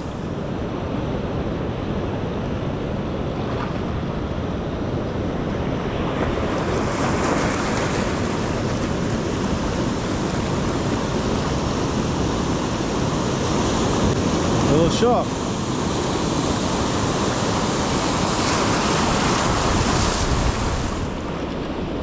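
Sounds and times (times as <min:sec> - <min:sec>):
surf washing over rocks: 0:05.4 - 0:22.0.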